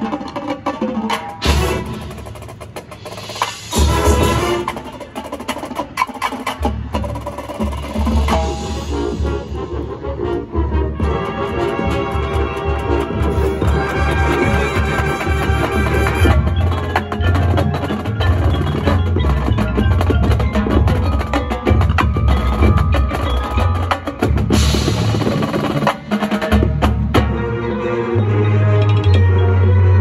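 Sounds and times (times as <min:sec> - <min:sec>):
marching band drums: 0:00.0 - 0:27.5
sustained low brass notes: 0:08.4 - 0:16.5.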